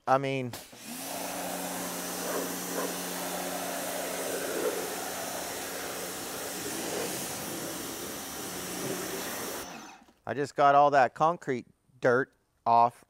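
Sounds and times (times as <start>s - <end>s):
water jet spraying: 0.8s - 9.7s
pressure washer motor humming: 0.8s - 10.1s.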